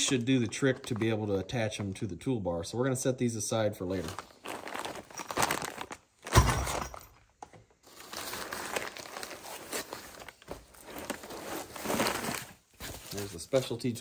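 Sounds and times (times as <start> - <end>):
packing paper rustling: 3.9 - 6.4, 7.8 - 13.8
plastic bags crinkling: 3.9 - 7.2, 7.8 - 13.8
sudden thump: 6.3 - 7.0.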